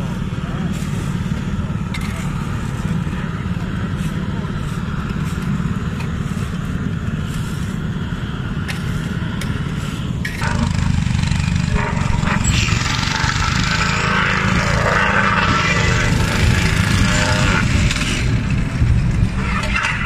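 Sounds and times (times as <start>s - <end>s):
loud rushing rattling noise: 10.1s - 20.0s
plate compactor engine running: 10.3s - 20.0s.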